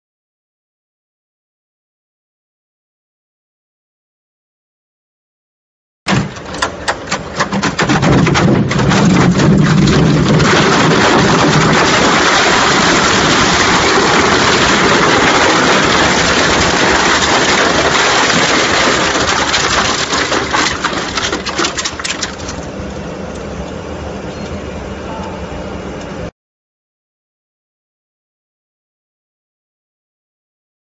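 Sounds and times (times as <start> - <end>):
shredder crunching and cracking: 6.1 - 22.7
machine humming: 6.2 - 26.3.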